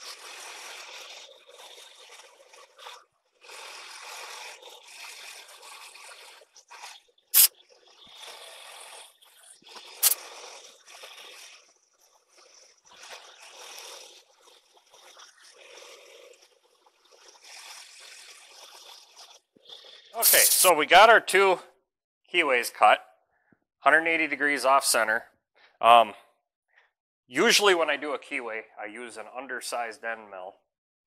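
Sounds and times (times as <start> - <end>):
milling cutter hissing: 10.0 - 10.2, 20.2 - 20.8.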